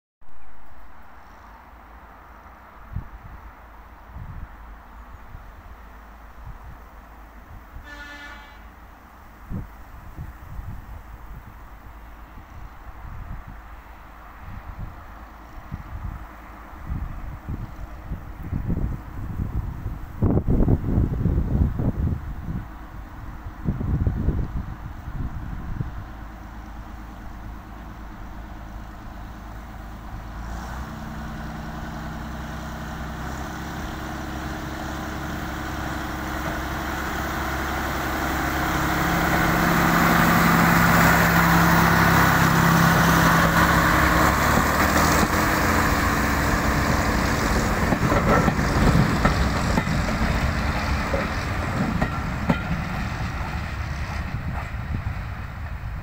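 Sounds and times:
diesel locomotive engine: 0.2 - 56.0
wheels clicking over rail joints: 32.8 - 55.8.

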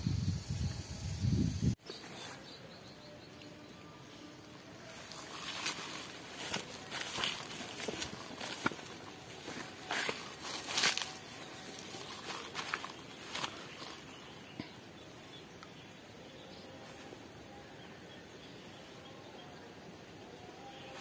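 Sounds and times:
faint insect calls: 0.0 - 21.0
grass rustling: 4.3 - 14.8.

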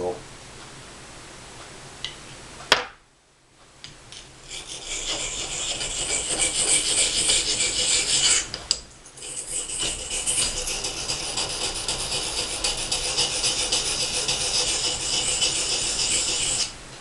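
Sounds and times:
knife scraping on sharpening stone: 4.5 - 16.7.

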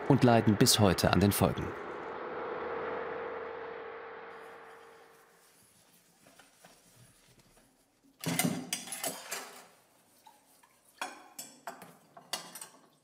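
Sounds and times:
dishes clattering in a sink: 8.2 - 13.0.

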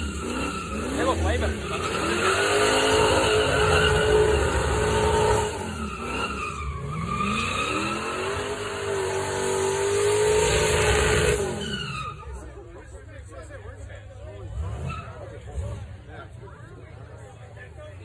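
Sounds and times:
car engine revving high: 0.0 - 11.8
tyres spinning and squealing: 0.0 - 16.0.

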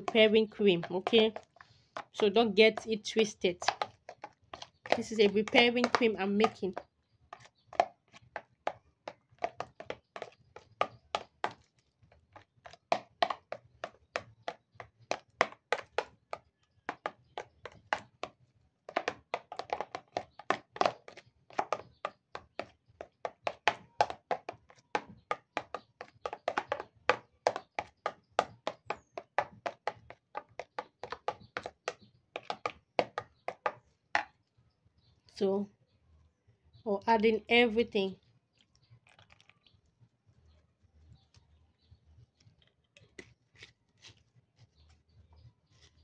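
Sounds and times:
spoon knocking plastic bowl: 0.0 - 6.8.

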